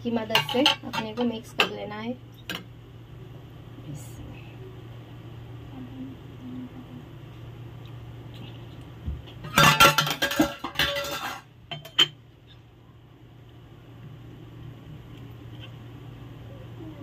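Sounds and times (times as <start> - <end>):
spoon clattering in metal bowl: 0.3 - 1.8, 9.5 - 12.2
low hum: 2.2 - 17.0.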